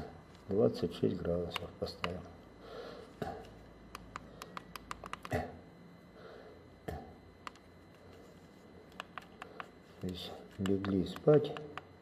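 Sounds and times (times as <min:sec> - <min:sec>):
plastic push buttons clicking: 0:09.0 - 0:11.9.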